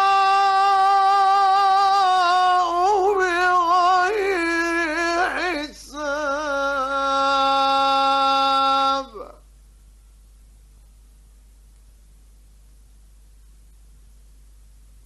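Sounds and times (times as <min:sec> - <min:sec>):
man reciting melodically: 0:00.0 - 0:09.4.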